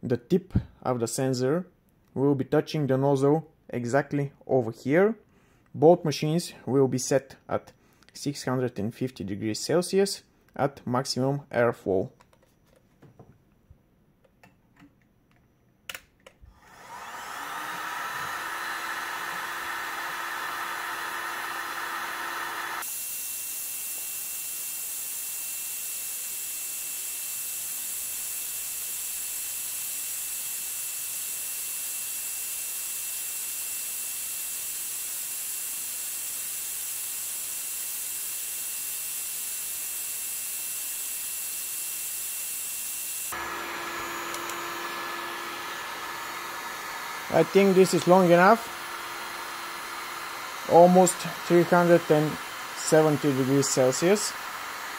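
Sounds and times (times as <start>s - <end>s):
heat gun fan blowing hum: 16.6s - 54.9s
heat gun switch click: 44.3s - 44.6s.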